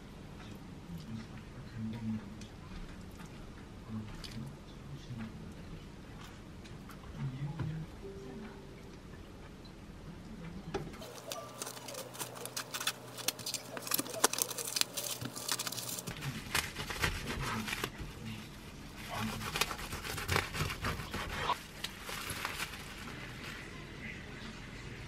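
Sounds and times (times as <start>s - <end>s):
cling film crinkling: 11.0s - 23.7s
knife sawing through sandwich: 16.6s - 17.8s, 19.0s - 21.6s.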